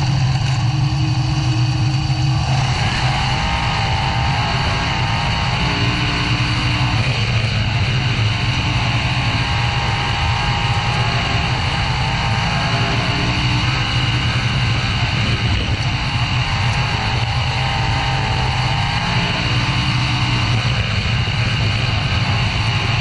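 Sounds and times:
race car engine droning: 0.0 - 23.0.

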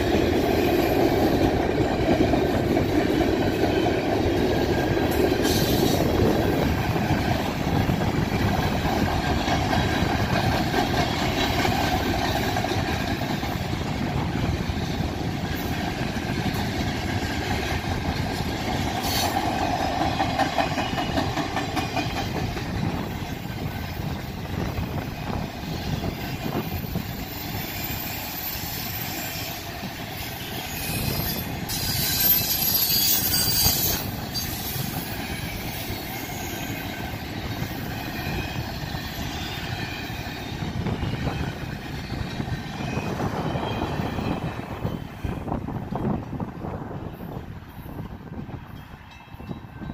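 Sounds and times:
train wheels rumbling on rails: 0.0 - 49.9
high-pitched wheel squeal: 30.2 - 37.0.

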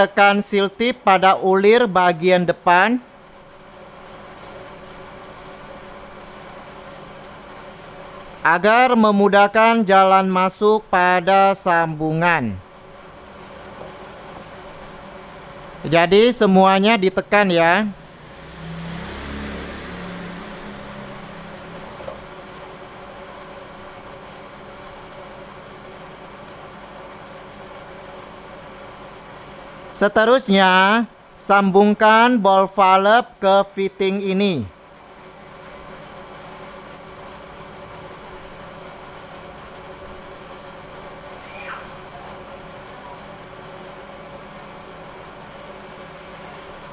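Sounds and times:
mechanical hum: 0.0 - 46.9
vehicle engine rumbling: 17.1 - 23.1.

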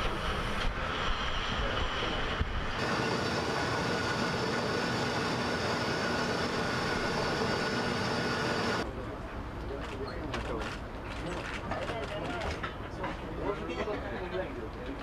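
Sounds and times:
steady whine: 0.0 - 9.1
deck machinery engine and winch: 0.0 - 11.6.

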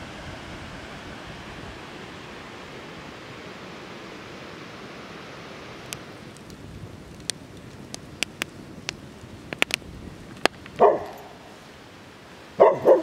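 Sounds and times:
dog barking: 10.8 - 11.5, 12.6 - 13.0.

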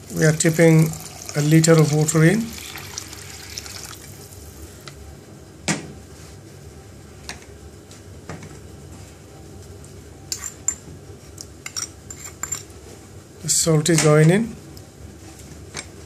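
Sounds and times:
water pouring into a pot: 0.0 - 4.4.

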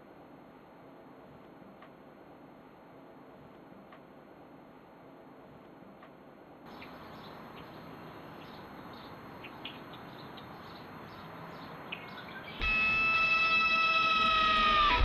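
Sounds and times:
steady hiss: 0.0 - 15.0
bird chirps: 6.7 - 15.0
electric guitar chord: 12.6 - 15.0.

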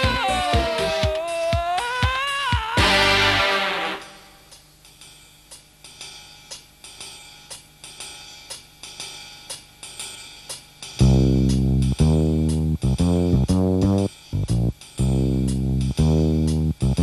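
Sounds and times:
band with bass and guitar: 0.0 - 1.2, 11.0 - 17.0
hi-hat ticking: 0.0 - 2.9, 4.0 - 17.0.

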